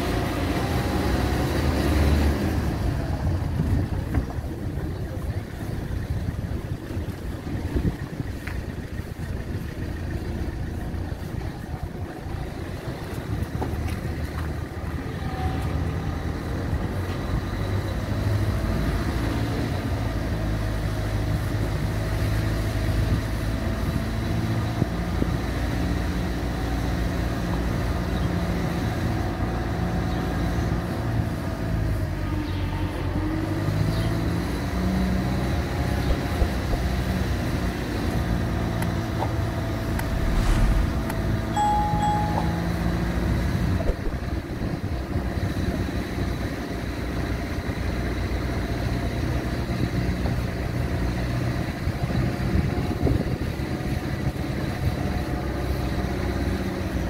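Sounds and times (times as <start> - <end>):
tyre and road noise: 32.2 - 43.6
faint whine: 39.8 - 43.3.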